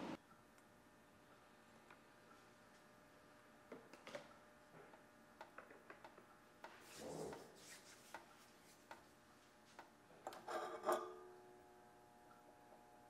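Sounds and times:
pan rubbing swish: 0:06.8 - 0:08.9
pan scraping and rattling: 0:10.4 - 0:11.2
metallic ring: 0:10.5 - 0:11.4.

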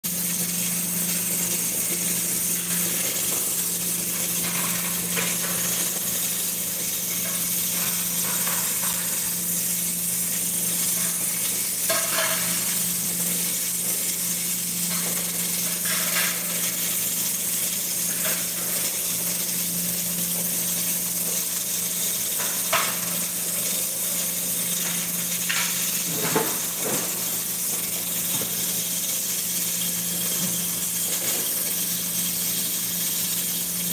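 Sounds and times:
gas burner hissing: 0:00.0 - 0:33.9
dishes and utensils clinking: 0:01.3 - 0:09.5, 0:10.6 - 0:13.1, 0:22.4 - 0:24.2, 0:24.8 - 0:29.0.

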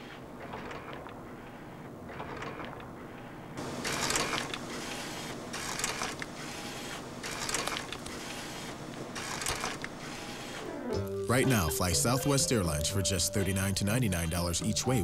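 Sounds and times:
machine clatter bursts: 0:00.0 - 0:10.7
photo printer running: 0:00.0 - 0:14.5.

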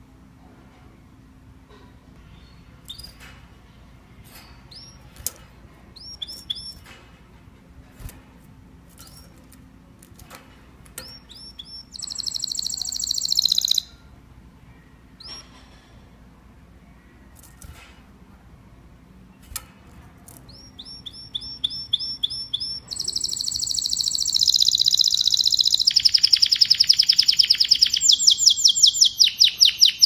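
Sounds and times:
bird fast trill: 0:06.0 - 0:06.8, 0:11.0 - 0:14.0, 0:20.5 - 0:30.0
canaries chirping: 0:06.0 - 0:06.8, 0:11.0 - 0:13.9, 0:20.5 - 0:30.0.

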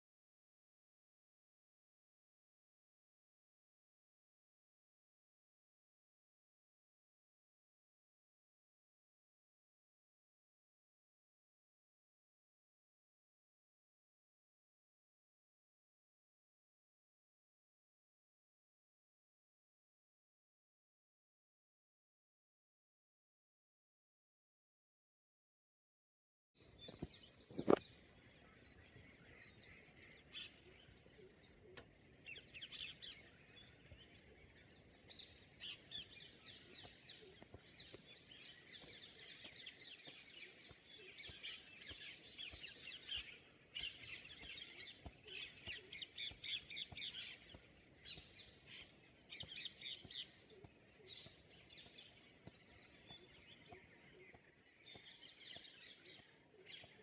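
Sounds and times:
small birds chirping: 0:26.6 - 0:57.0.

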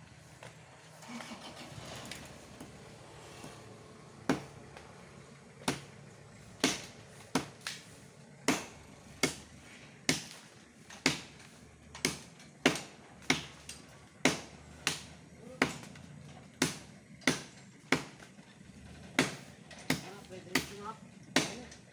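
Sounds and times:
blade chopping wood: 0:04.2 - 0:04.9, 0:05.6 - 0:18.3, 0:19.1 - 0:21.8.

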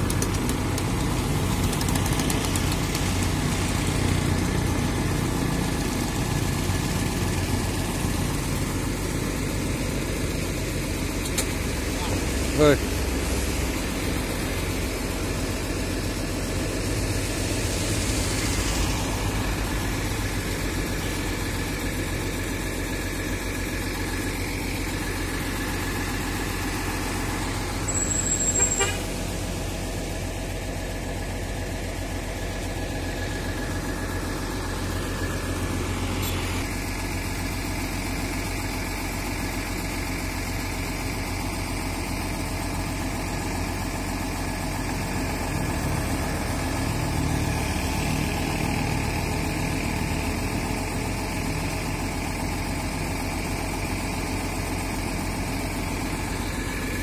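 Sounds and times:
bus diesel engine idling: 0:00.0 - 0:57.0.

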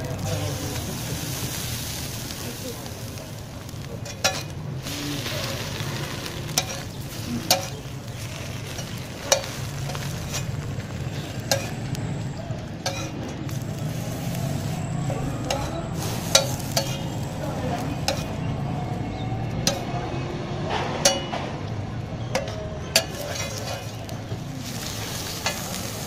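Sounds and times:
egg sizzling: 0:00.0 - 0:19.9, 0:22.4 - 0:26.0
metal spatula scraping griddle: 0:03.4 - 0:18.4, 0:22.3 - 0:26.0.

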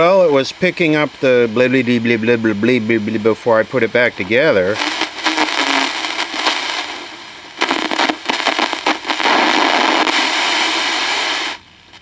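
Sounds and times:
radio static hiss: 0:00.0 - 0:12.0
crackling clicks: 0:04.8 - 0:12.0.

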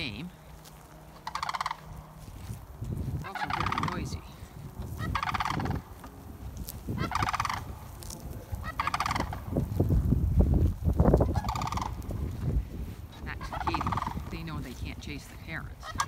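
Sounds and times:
cranes rattling calls: 0:00.0 - 0:10.1, 0:11.0 - 0:16.0
low rumbling noise: 0:00.0 - 0:16.0.

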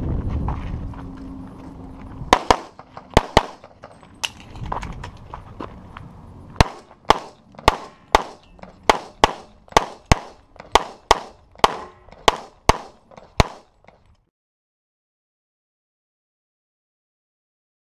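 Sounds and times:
handgun shots: 0:02.3 - 0:04.4, 0:06.6 - 0:13.7.

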